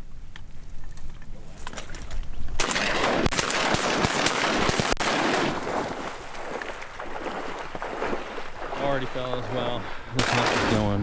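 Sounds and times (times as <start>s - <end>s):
shotgun blasts: 2.6s - 7.2s, 10.2s - 11.0s.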